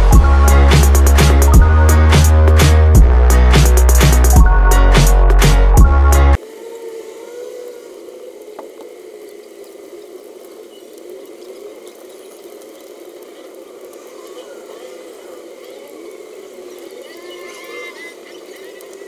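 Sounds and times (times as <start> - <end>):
loud electronic music: 0.0 - 6.4.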